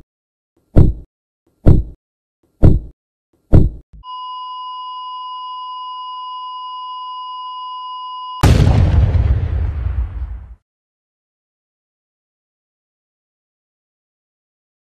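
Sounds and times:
heartbeat thumps: 0.8 - 2.0, 2.6 - 2.9, 3.5 - 3.8
high flatline beep: 4.0 - 8.4
loud crashing blast: 8.4 - 10.6.

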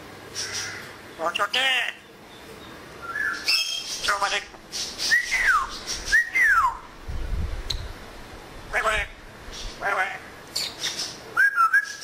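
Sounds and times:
parrot whistling: 3.0 - 4.4, 5.0 - 6.8, 11.4 - 12.0
parrot voice-like call: 8.7 - 9.2, 9.8 - 10.3.

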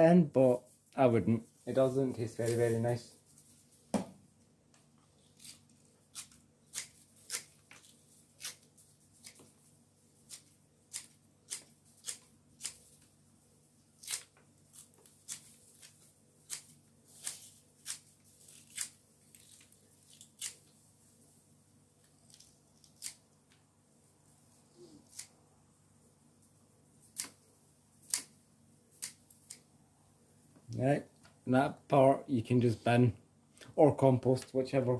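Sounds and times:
scissors snipping spring onions: 5.4 - 9.5, 10.2 - 13.0, 14.0 - 20.7, 22.3 - 23.2, 25.0 - 25.4, 28.9 - 29.6.

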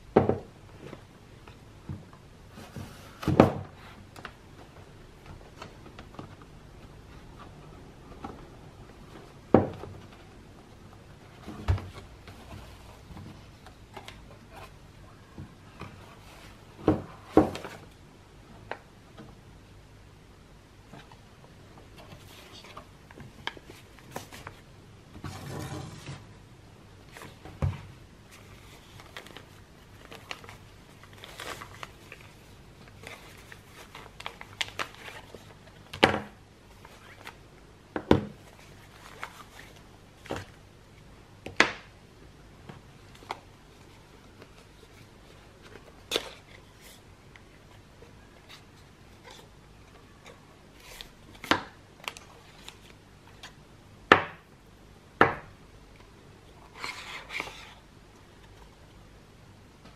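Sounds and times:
paper rustling: 28.3 - 35.9.

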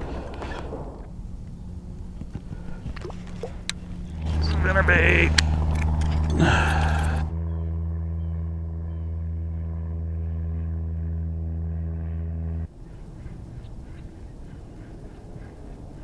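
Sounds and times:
small electric motor humming: 0.8 - 12.7.

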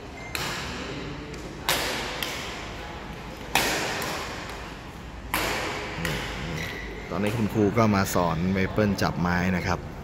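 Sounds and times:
rackets hitting shuttlecocks: 0.2 - 7.6.

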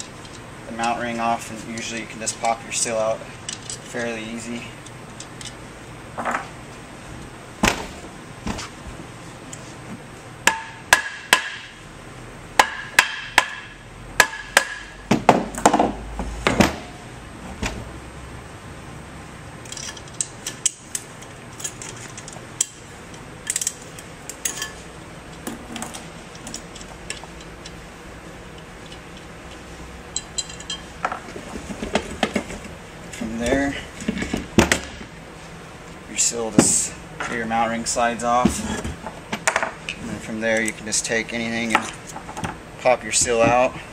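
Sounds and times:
metal tools knocking and clinking: 23.4 - 24.8, 30.1 - 31.2.

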